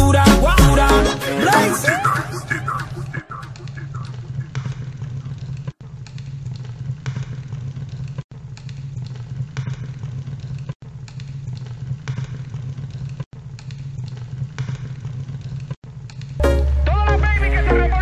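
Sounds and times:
scattered clicks: 2.8s - 16.4s.

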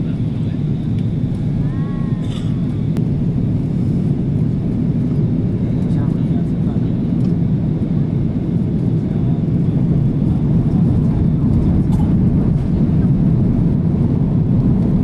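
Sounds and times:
airplane cabin rumble: 0.0s - 15.0s.

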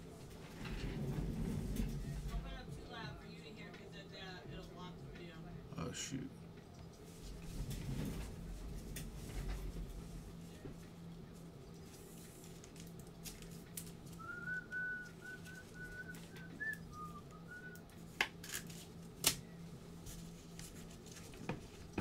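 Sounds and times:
steady low hum: 0.0s - 22.0s
person whistling a tune: 14.2s - 17.8s.

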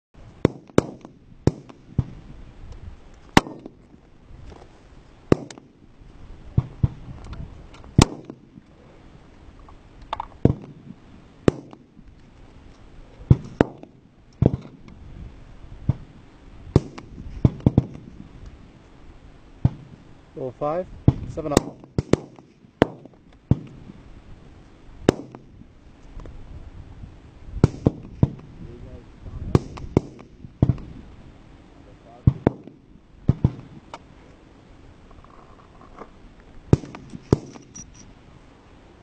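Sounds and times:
rifle shots: 0.4s - 2.2s, 3.3s - 3.8s, 5.3s - 5.7s, 8.0s - 8.5s, 11.4s - 11.9s, 16.8s - 18.0s, 21.1s - 23.8s, 25.1s - 25.5s, 27.6s - 28.4s, 29.5s - 30.9s, 32.2s - 33.8s, 36.7s - 37.8s
gunshot echo: 3.4s - 3.8s, 8.0s - 8.5s, 11.5s - 11.9s, 16.8s - 18.0s, 25.1s - 25.5s, 27.6s - 28.4s, 36.7s - 37.7s.

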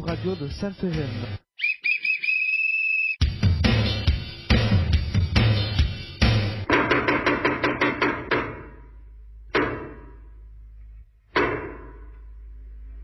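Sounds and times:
percussion hits: 3.2s - 10.3s, 11.3s - 12.3s.

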